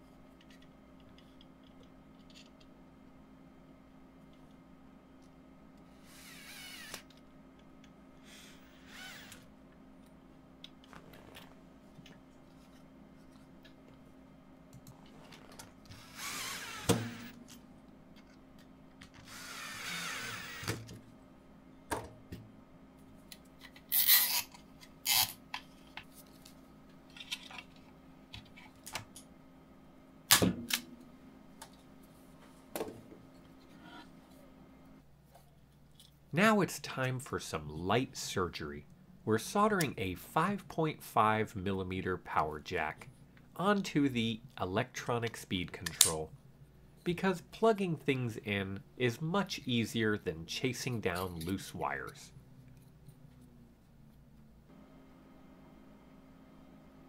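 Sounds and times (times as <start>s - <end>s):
cordless drill driving screws: 6.1s - 7.1s, 8.6s - 9.4s, 15.9s - 17.4s, 19.1s - 20.8s.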